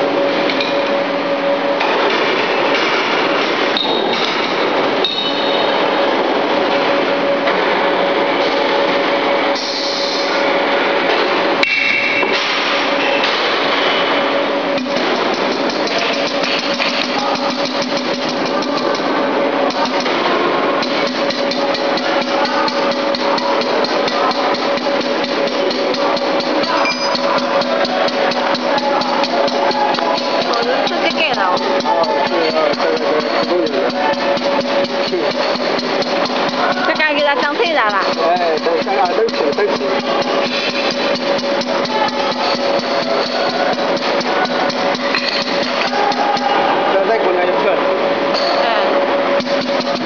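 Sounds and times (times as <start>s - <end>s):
steady hum: 0.0s - 50.0s
fast mechanical knocking: 14.4s - 47.0s, 49.2s - 50.0s.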